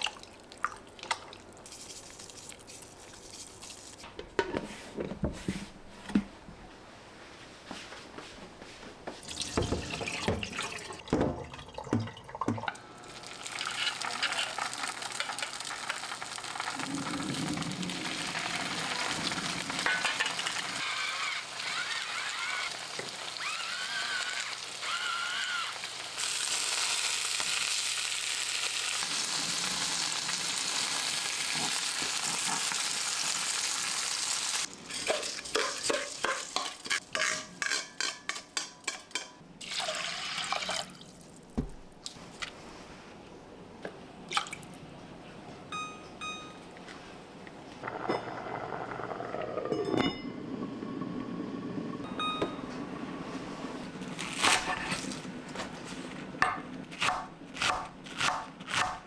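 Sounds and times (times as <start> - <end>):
food sizzling in a pan: 13.1 - 37.0.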